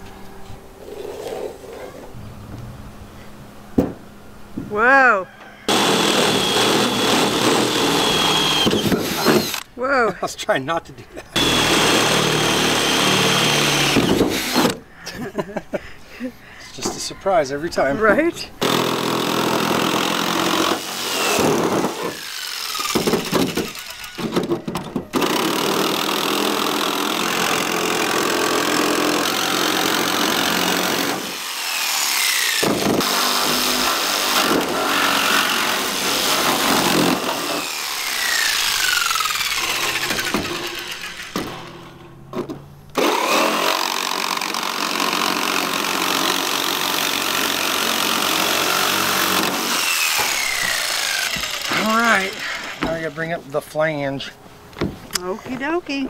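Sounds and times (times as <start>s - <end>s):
jigsaw cutting sheet metal: 5.7s - 9.7s, 11.4s - 14.8s, 18.6s - 42.0s, 42.9s - 53.4s.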